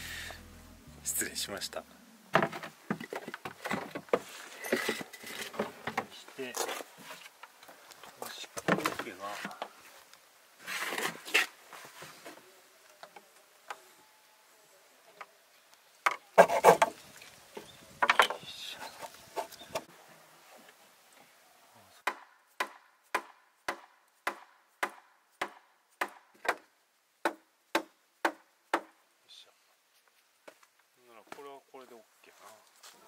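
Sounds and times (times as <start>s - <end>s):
wood and plastic knocks and scrapes: 2.3s - 7.3s, 8.6s - 9.7s, 16.1s - 17.0s, 17.6s - 18.4s
hammer striking wooden frame: 22.0s - 29.0s.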